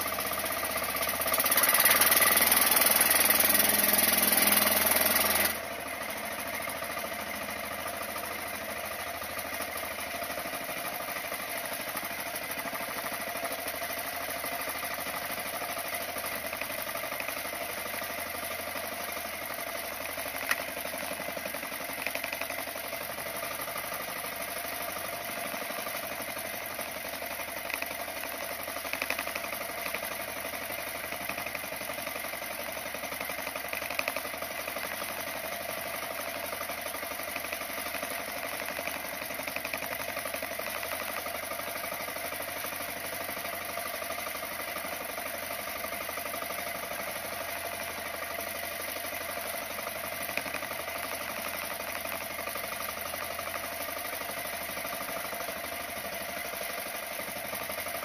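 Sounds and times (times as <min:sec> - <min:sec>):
sharp clicks and knocks: 0:20.4 - 0:20.8, 0:28.9 - 0:30.1.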